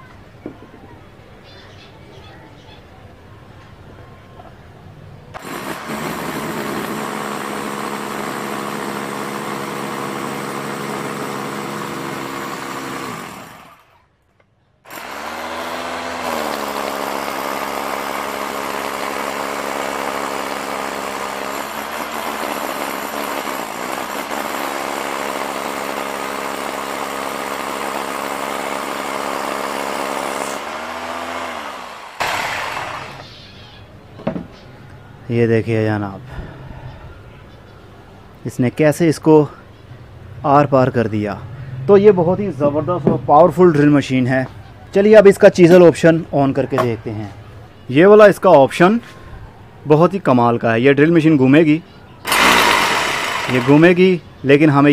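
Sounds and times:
hammer drill boring through brick: 5.4 - 14.0, 14.9 - 33.3, 52.3 - 54.1.

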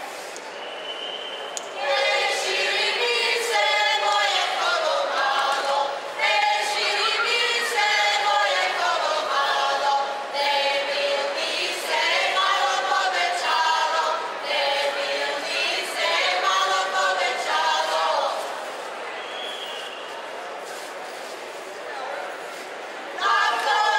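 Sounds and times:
group singing a cappella: 1.8 - 18.7, 23.2 - 23.9.

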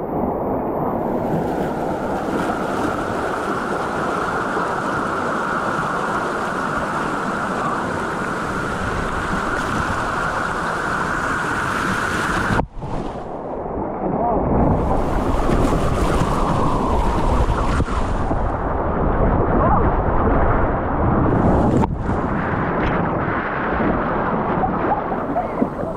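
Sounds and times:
wind buffeting microphone: 0.0 - 25.9
white water rushing: 0.1 - 25.9
deep underwater rumble: 5.7 - 25.9.

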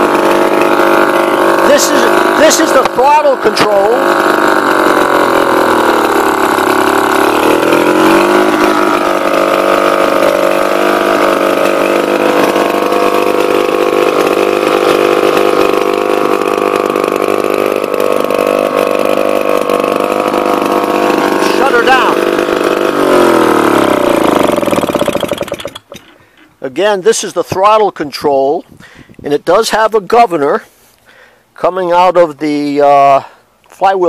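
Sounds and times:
two-stroke engine running: 0.0 - 26.6.

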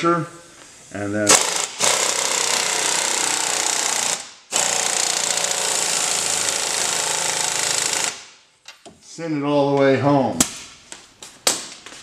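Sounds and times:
impact wrench hammering: 1.3 - 8.4.

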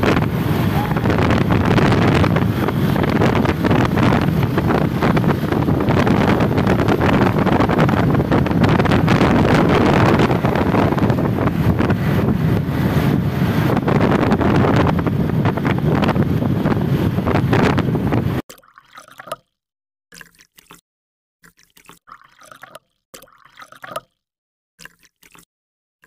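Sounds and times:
traffic noise: 0.0 - 8.4
low engine rumble: 0.0 - 18.2
wind buffeting microphone: 0.0 - 18.4.

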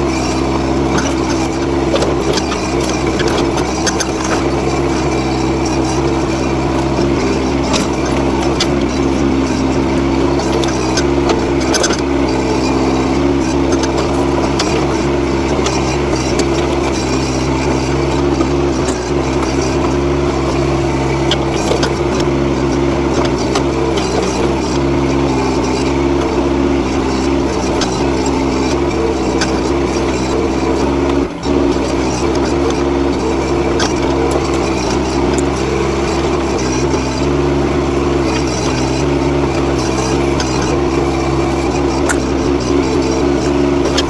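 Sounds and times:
excavator engine running: 0.0 - 44.0.

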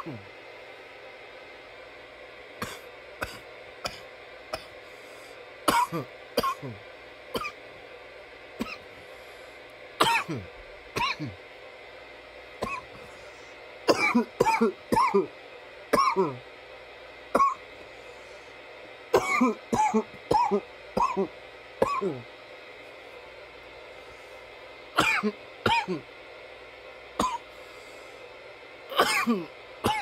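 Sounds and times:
man coughing: 2.6 - 4.8, 5.7 - 6.8, 8.6 - 8.8, 10.0 - 11.4, 12.6 - 13.0, 13.9 - 15.3, 16.0 - 16.4, 19.2 - 22.3, 25.0 - 26.1, 27.2 - 27.4, 28.9 - 30.0.

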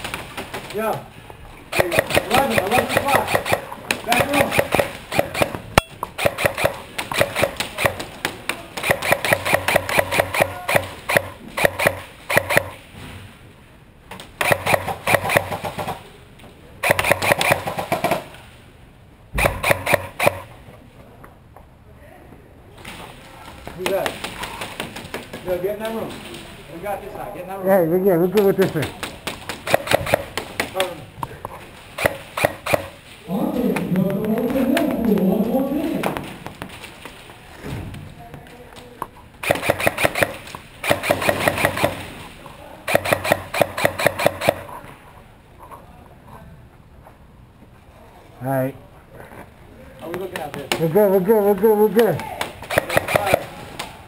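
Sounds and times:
airsoft rifle full-auto bursts: 1.7 - 8.2, 8.8 - 12.8, 14.4 - 16.0, 16.8 - 18.3, 19.4 - 20.5, 29.5 - 30.9, 32.0 - 33.0, 39.4 - 42.1, 42.9 - 44.7, 52.6 - 53.6.

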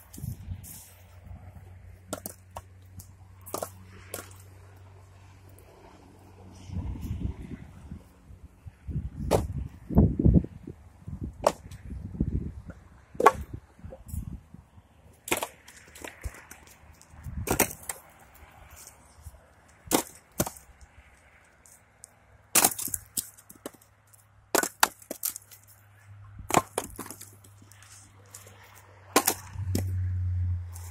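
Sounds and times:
wood pieces falling: 2.1 - 4.4, 15.2 - 18.1, 19.8 - 20.7, 22.5 - 25.8, 26.4 - 29.9
wood cracking as it splits: 15.2 - 18.1, 19.7 - 21.3, 22.5 - 23.9, 24.5 - 25.8, 26.4 - 28.5.

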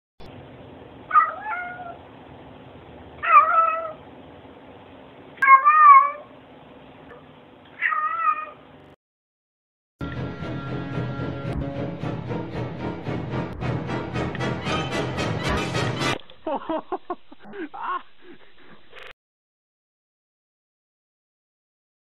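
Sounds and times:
cat meowing: 1.1 - 2.0, 3.2 - 4.0, 5.4 - 6.3, 7.8 - 8.6
music: 10.0 - 16.2.

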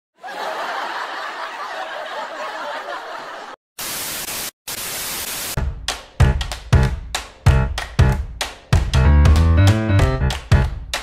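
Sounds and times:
tv static white noise bursts: 3.8 - 5.6
music: 5.6 - 11.0.

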